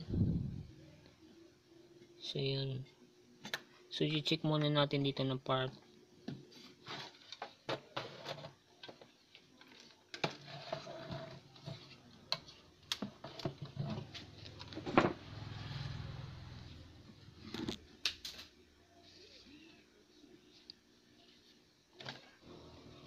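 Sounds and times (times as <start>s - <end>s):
low hum: 0.0s - 1.2s.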